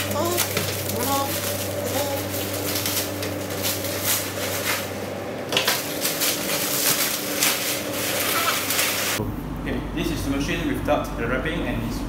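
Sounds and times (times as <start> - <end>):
plastic wrap crinkling: 0.0 - 9.2.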